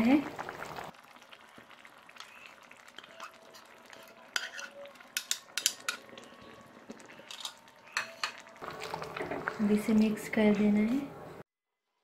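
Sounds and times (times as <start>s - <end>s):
faint sizzle from pan: 0.0s - 11.0s
spatula scraping a bowl: 3.1s - 4.9s
sharp taps against bowl and pan: 5.2s - 6.0s.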